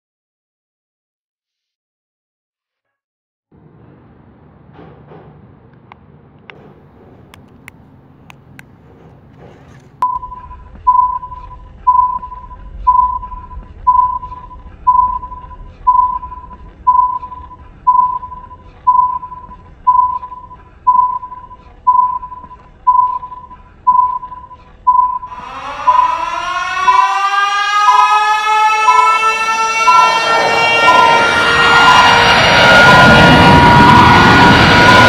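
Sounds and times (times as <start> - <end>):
steady electronic beeps: 10.0 - 35.0
siren wailing: 10.2 - 20.6, 25.2 - 35.0.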